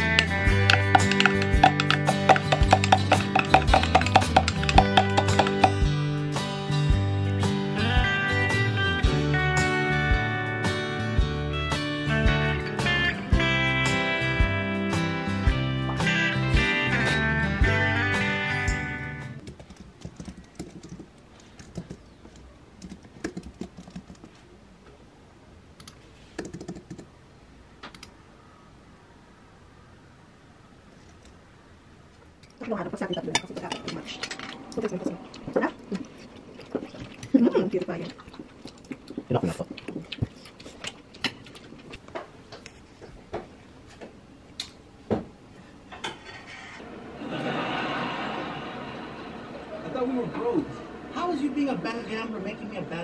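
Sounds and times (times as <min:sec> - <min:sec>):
cutlery clinking against a plate: 0:00.0 - 0:05.8.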